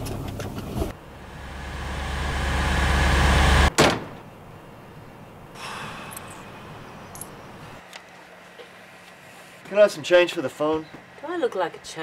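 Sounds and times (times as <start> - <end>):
car engine revving: 0.9 - 3.7.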